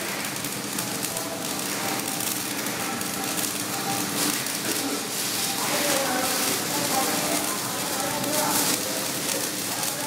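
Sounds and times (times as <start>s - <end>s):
welding arc: 0.0s - 10.0s.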